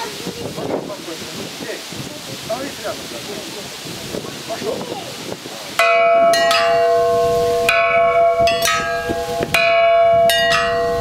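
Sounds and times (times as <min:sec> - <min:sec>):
metal bells ringing: 0:05.8 - 0:11.0.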